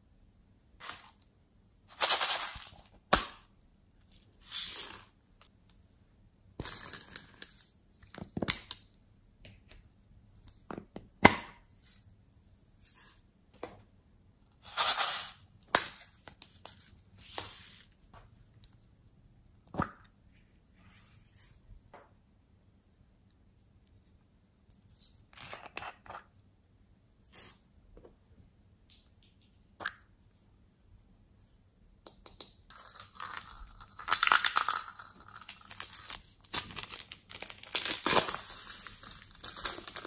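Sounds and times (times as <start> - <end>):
beads and glitter rustling: 32.7 - 40.0.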